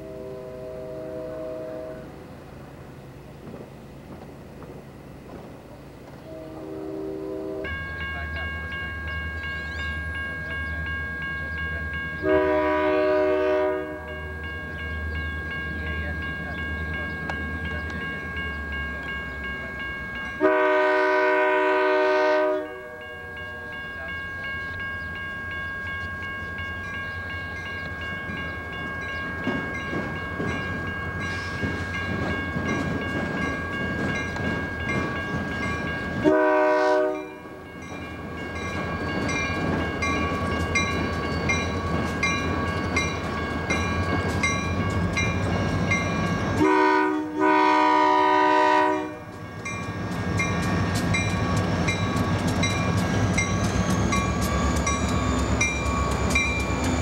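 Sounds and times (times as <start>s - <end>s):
locomotive air horn blasts: 0.0s - 2.2s, 6.2s - 7.8s, 12.2s - 14.3s, 20.4s - 23.7s, 36.2s - 37.4s, 46.6s - 49.4s
train engine and wheels rumbling: 0.0s - 57.0s.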